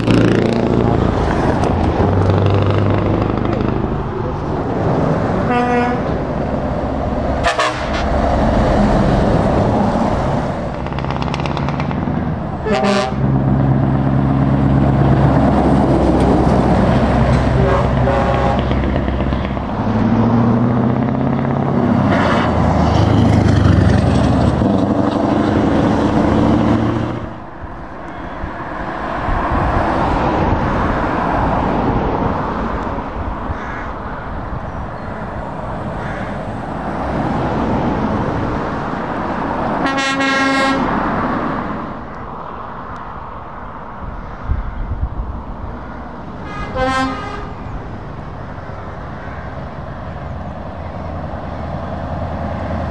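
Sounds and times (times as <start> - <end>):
diesel truck engine: 0.0 - 52.9
trucks passing: 0.0 - 52.9
truck horn: 5.4 - 6.2, 7.4 - 8.3, 12.6 - 13.5, 17.4 - 18.9, 39.8 - 41.0, 46.4 - 47.7.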